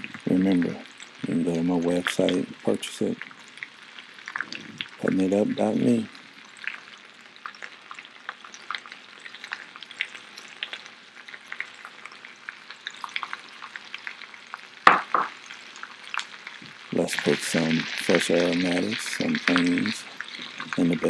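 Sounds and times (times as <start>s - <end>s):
potatoes sizzling in oil: 0.0s - 21.0s
knock: 14.9s - 15.4s.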